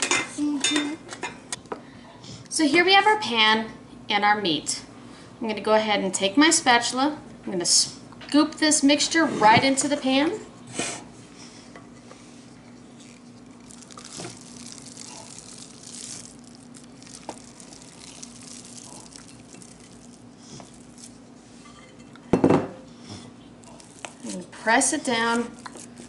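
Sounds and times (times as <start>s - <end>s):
faint steady hum: 0.0s - 26.0s
wet meat mixture squishing: 12.9s - 21.3s, 23.6s - 26.0s.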